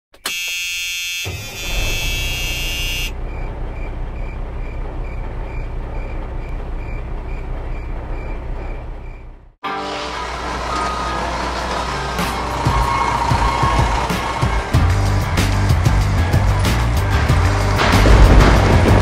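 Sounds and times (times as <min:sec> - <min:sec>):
vehicle horn: 0:00.2 - 0:03.2
truck reversing beeper: 0:00.2 - 0:13.9
street noise: 0:01.1 - 0:19.0
low engine rumble: 0:01.6 - 0:19.0.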